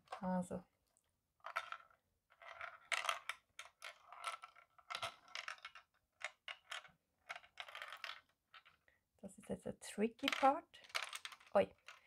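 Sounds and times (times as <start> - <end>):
ball clattering through plastic bricks: 1.4 - 8.9, 10.1 - 12.0.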